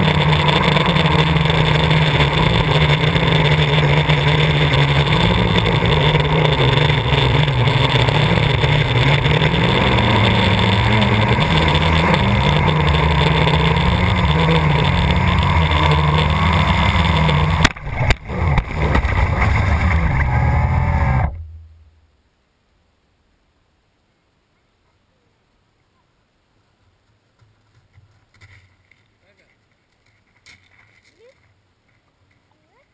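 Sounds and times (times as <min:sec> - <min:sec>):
drone motors humming: 0:00.0 - 0:22.2.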